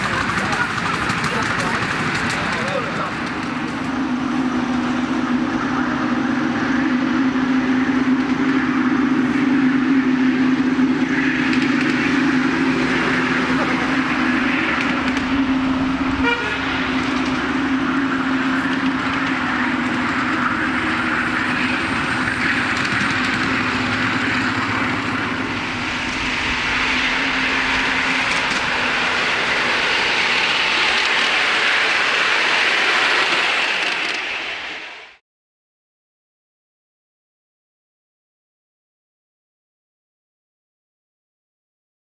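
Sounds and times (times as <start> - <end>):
steam locomotive hissing: 0.0 - 35.2.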